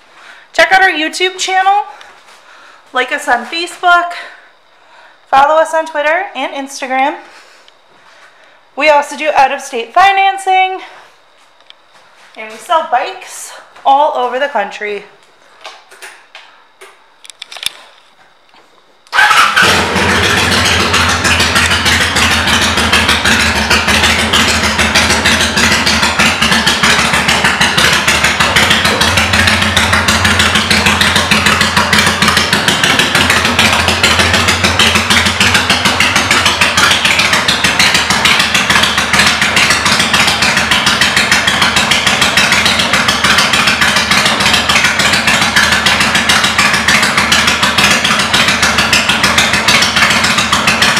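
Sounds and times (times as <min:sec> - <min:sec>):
motorcycle engine idling: 0:19.1 - 0:50.9.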